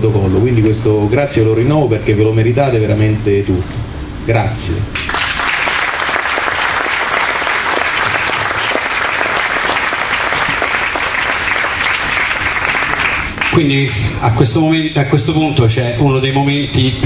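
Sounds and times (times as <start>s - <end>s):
audience applauding: 5.0s - 13.7s.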